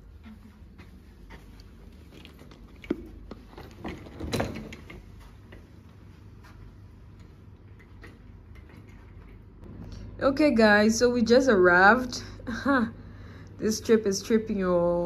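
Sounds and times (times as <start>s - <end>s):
low room hum: 0.0s - 15.0s
suitcase clatter: 2.2s - 5.0s
suitcases knocking and clicking: 2.5s - 5.1s.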